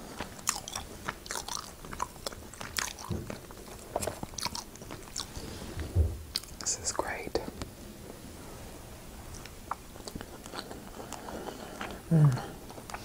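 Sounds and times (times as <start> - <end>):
person chewing food: 0.0 - 6.7, 9.3 - 13.0.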